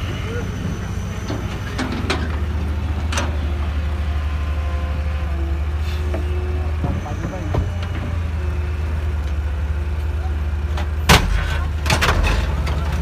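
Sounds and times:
diesel engines droning: 0.0 - 13.0.

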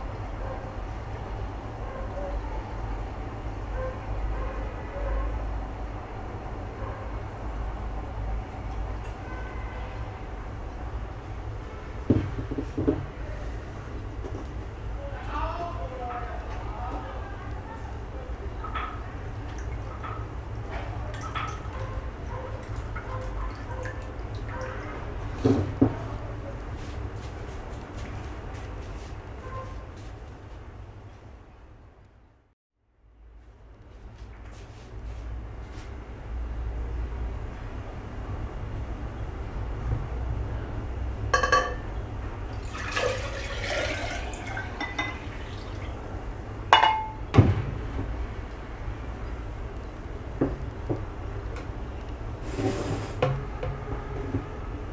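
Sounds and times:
water dripping and splashing: 18.7 - 25.2, 42.5 - 46.1
glass clinking: 41.4 - 41.9, 42.7 - 45.8, 46.8 - 47.2
water pouring into glass pitcher: 42.5 - 46.2.

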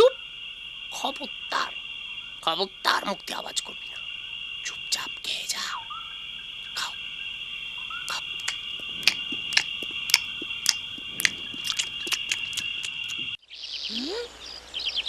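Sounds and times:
crickets chirring: 0.0 - 15.0
crunching munching clicks: 8.1 - 13.4.

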